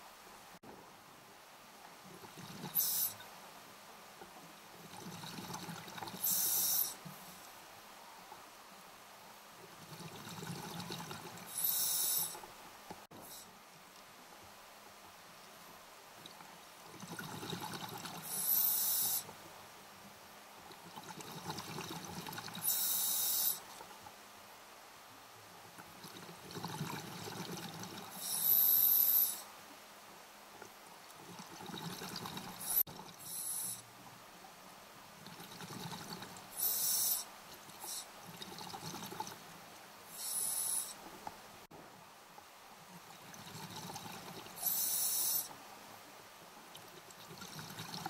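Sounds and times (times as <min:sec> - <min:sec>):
regulator inhalation hiss: 0:02.7 - 0:03.2, 0:06.2 - 0:07.4, 0:11.5 - 0:12.4, 0:18.2 - 0:19.3, 0:22.6 - 0:23.6, 0:28.1 - 0:29.5, 0:32.6 - 0:33.8, 0:36.6 - 0:38.1, 0:40.1 - 0:41.0, 0:44.6 - 0:45.5
bubbling exhaled air: 0:31.3 - 0:33.8.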